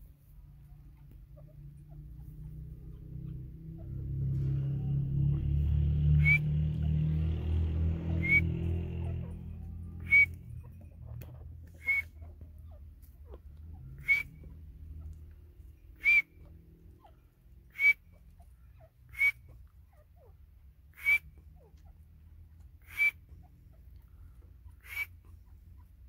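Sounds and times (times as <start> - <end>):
bird whistled call: 6.1 - 6.6, 8.1 - 8.8, 9.9 - 10.6, 11.8 - 12.2, 14.0 - 14.5, 16.0 - 16.5, 17.7 - 18.2, 19.1 - 19.5, 21.0 - 21.3, 22.8 - 23.2, 24.8 - 25.2.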